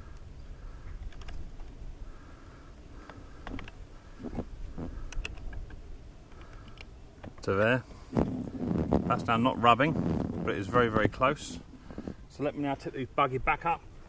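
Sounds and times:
wind rumble on microphone: 0:08.0 - 0:12.3.

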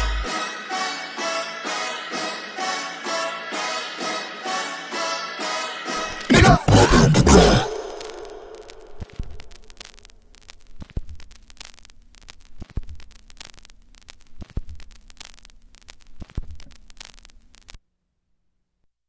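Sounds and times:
static crackle: 0:06.0 - 0:17.8.

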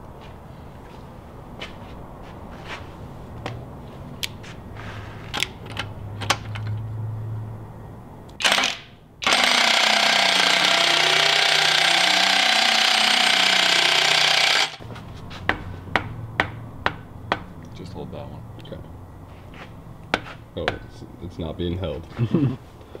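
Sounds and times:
pneumatic impact wrench running: 0:08.4 - 0:14.8.

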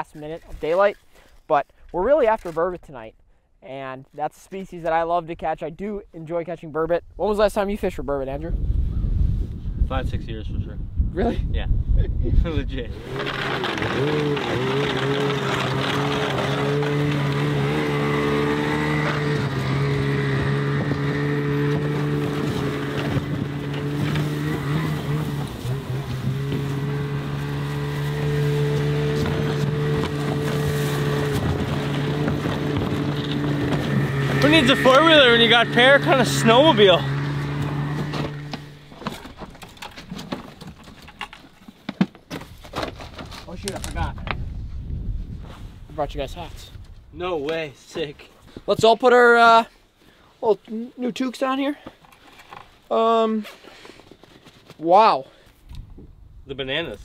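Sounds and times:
snowmobile engine running: 0:12.9 - 0:39.4
gear knocking and rattling: 0:12.9 - 0:44.4.

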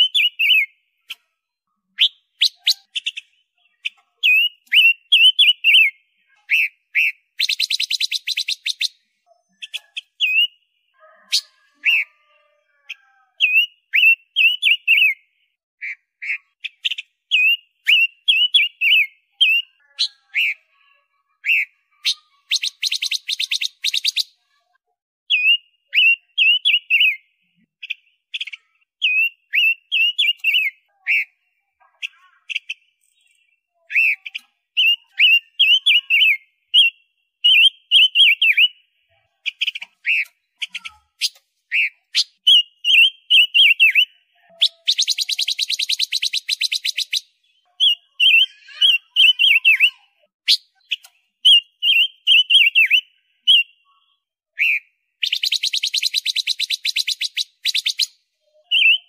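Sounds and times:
bird singing warbled notes: 0:39.4 - 0:53.9, 0:54.6 - 0:59.0.

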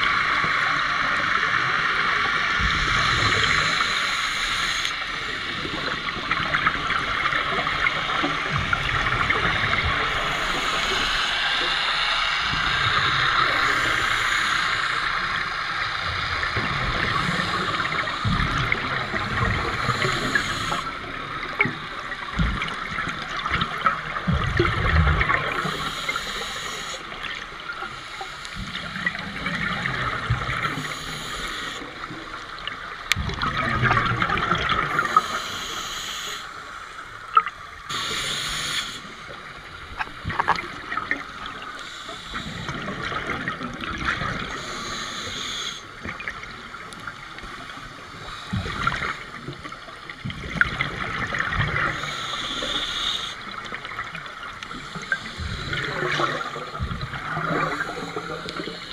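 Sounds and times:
regulator hissing inhalations: 0:02.7 - 0:05.1, 0:10.0 - 0:15.4, 0:19.5 - 0:21.1, 0:25.6 - 0:27.2, 0:30.6 - 0:32.0, 0:34.9 - 0:37.2, 0:37.9 - 0:39.4, 0:41.7 - 0:43.0, 0:44.4 - 0:46.0, 0:47.7 - 0:49.5, 0:51.9 - 0:53.6, 0:54.6 - 0:58.9
exhaled bubbles rushing: 0:21.0 - 0:25.8, 0:33.2 - 0:35.1, 0:48.6 - 0:52.1.

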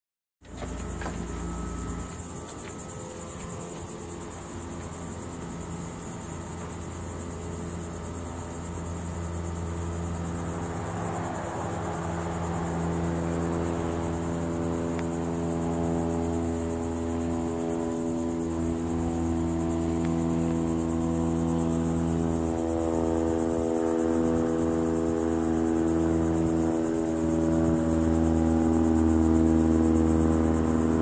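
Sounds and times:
high-pitched insect chirring: 0:00.5 - 0:31.0
low hum: 0:00.5 - 0:31.0.

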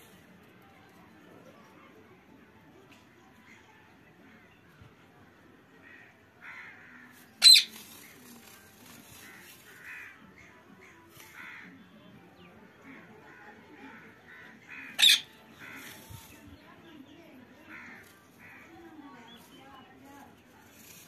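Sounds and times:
soft short parakeet calls: 0:07.4 - 0:07.7
parakeets screeching: 0:07.4 - 0:08.5, 0:14.7 - 0:16.3.

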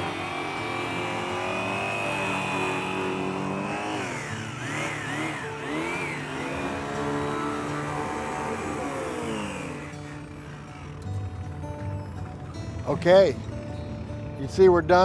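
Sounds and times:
polisher motor whine: 0:00.0 - 0:12.7.

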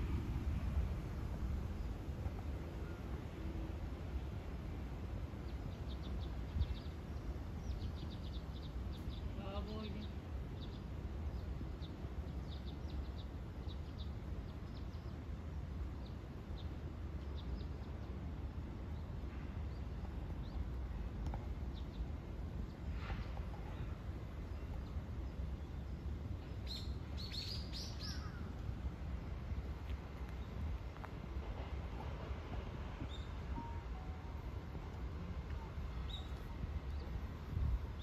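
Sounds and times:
small birds chirping: 0:05.4 - 0:15.4, 0:21.6 - 0:28.6.

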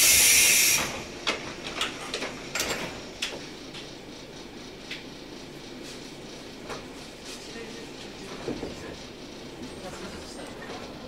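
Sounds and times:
loud compressed-air hiss: 0:00.0 - 0:01.2.

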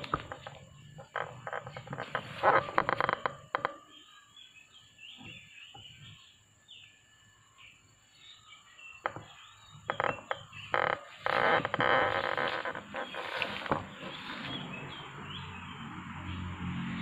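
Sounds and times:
crackling rustle: 0:00.0 - 0:03.8, 0:09.9 - 0:15.2
faint birds chirping: 0:00.0 - 0:17.0.

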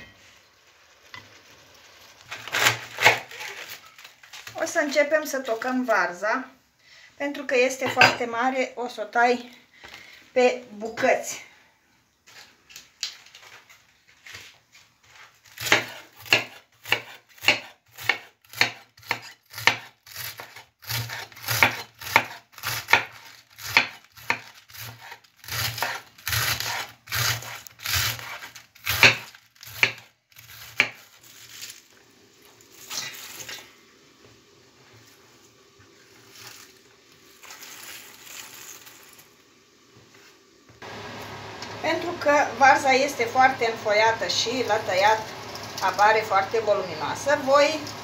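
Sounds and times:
cabbage rustling into bowl: 0:02.2 - 0:05.9, 0:23.1 - 0:33.8, 0:36.0 - 0:39.3
knife slicing cabbage on board: 0:02.3 - 0:03.8, 0:15.5 - 0:31.6.

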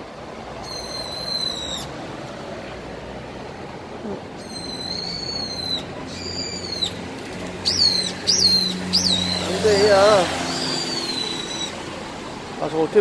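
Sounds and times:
bird whistled alarm calls: 0:00.6 - 0:01.9, 0:04.4 - 0:07.0, 0:07.6 - 0:11.8.

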